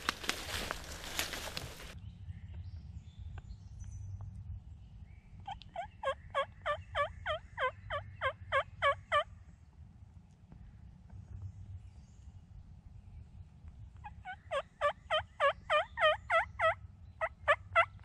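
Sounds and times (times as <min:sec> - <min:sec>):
wild turkey yelping: 0:05.5 - 0:09.2, 0:14.0 - 0:18.0.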